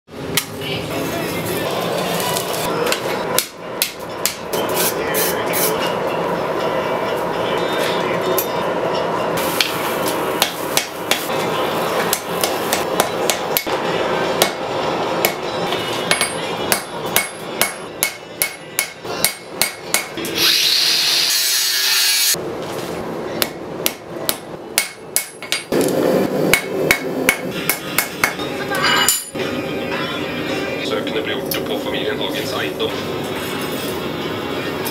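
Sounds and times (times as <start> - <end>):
hammer striking steel on anvil: 2.9 - 4.7, 10.4 - 11.4, 12.0 - 13.8, 14.4 - 14.6, 15.2 - 20.4, 23.4 - 25.9, 26.5 - 29.4.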